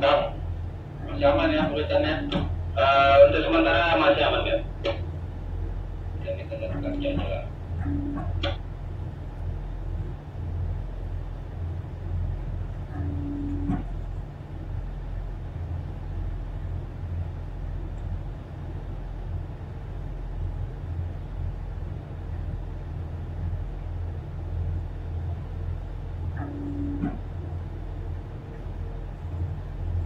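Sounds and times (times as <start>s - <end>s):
diesel engine drone: 0.0s - 30.0s
brief steady tone: 7.8s - 8.6s, 12.9s - 13.9s, 26.4s - 27.2s.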